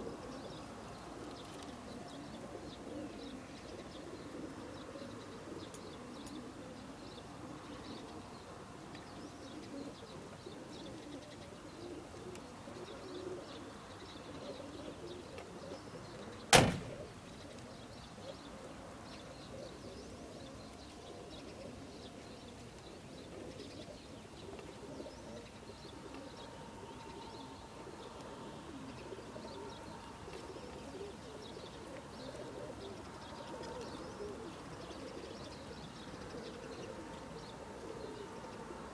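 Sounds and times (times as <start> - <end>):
pigeons cooing: 0.0 - 38.9
sharp knock: 16.6 - 17.0.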